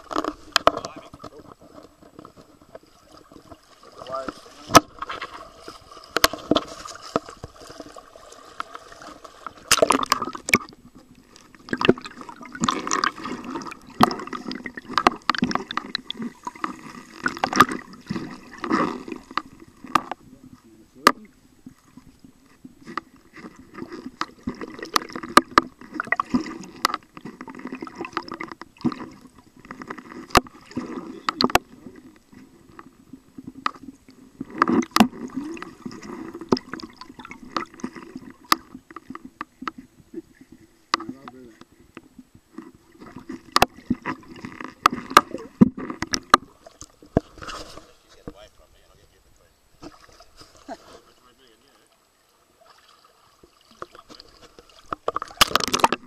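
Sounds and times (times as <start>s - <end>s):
water gurgling underwater: 0.0s - 47.5s, 52.5s - 56.0s
sharp clicks and knocks: 53.8s - 56.0s.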